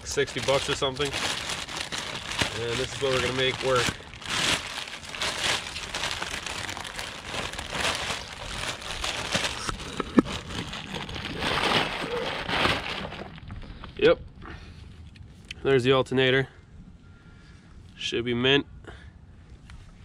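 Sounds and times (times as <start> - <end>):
plastic bag and bubble wrap crinkling: 0.0 - 14.1.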